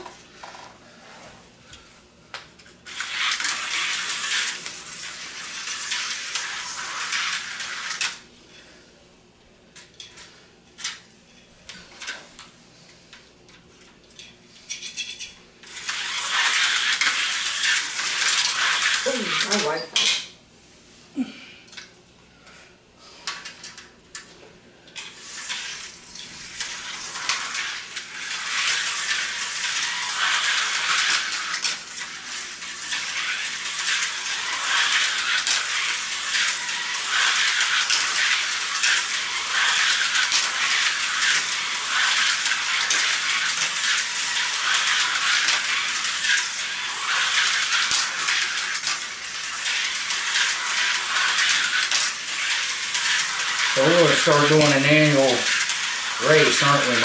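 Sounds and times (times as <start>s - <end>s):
slot cars rattling over track: 26.7s - 57.0s.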